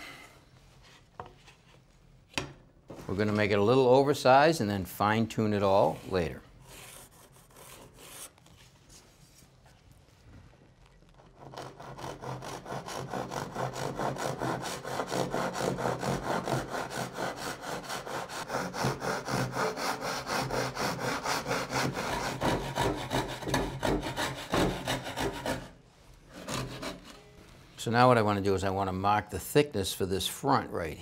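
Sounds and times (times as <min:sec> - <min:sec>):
hand saw cutting wood: 0:11.4 - 0:27.2.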